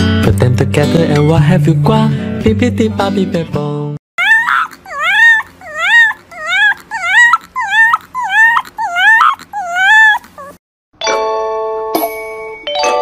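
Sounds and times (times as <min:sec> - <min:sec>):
puppy whimpering howls: 0:04.2 - 0:10.6.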